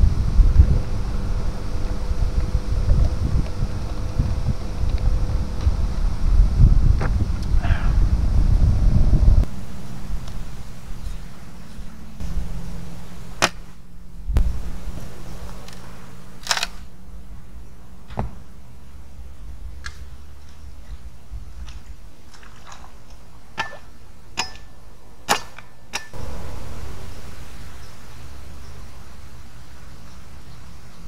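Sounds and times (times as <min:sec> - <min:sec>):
low wind rumble: 0:00.0 - 0:31.0
machete chopping wooden pole: 0:13.4 - 0:13.7, 0:23.6 - 0:26.2.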